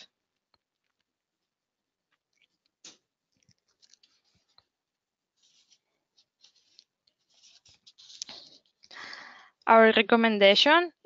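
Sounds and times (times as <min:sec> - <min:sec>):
scratchy rustling: 0:02.3 - 0:08.9.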